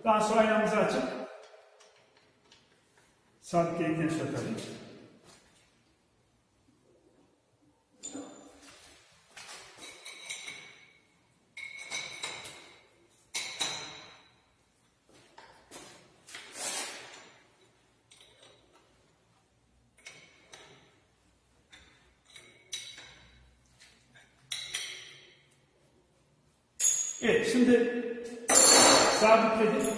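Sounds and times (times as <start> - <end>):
metallic clinks of wrench and bolts: 9.8 - 14.5, 17.1 - 18.8, 20.0 - 21.0, 21.7 - 23.5, 24.1 - 25.4, 26.8 - 27.2.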